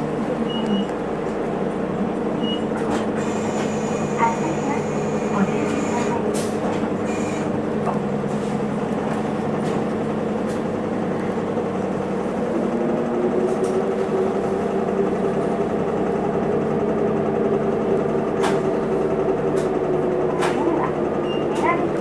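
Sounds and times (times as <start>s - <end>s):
bus diesel engine droning: 0.0s - 22.0s.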